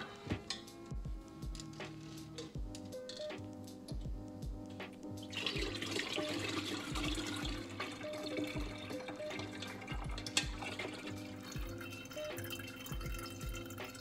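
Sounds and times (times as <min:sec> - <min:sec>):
liquid pouring through strainer: 0:05.2 - 0:14.0.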